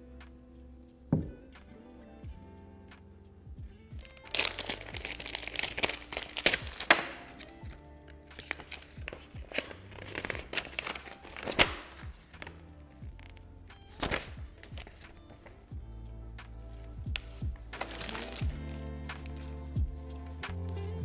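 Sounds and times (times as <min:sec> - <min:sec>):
background music: 0:00.0 - 0:21.0
packaging crinkling and rustling: 0:04.1 - 0:07.6, 0:08.4 - 0:12.6, 0:13.2 - 0:15.6, 0:17.2 - 0:19.6
packaging thunks: 0:04.2 - 0:07.5, 0:17.2 - 0:18.6.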